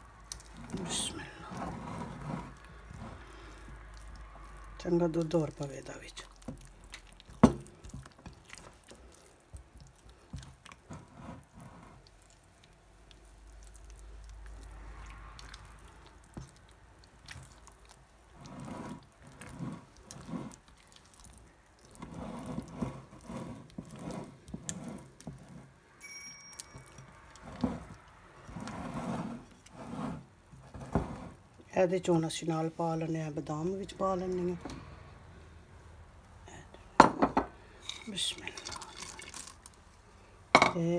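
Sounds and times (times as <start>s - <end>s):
batter squishing: 0.0s - 34.6s, 37.6s - 40.9s
utensil scraping a glass bowl: 0.3s - 6.2s, 10.3s - 12.2s, 18.3s - 25.8s, 26.5s - 31.4s, 37.2s - 39.5s.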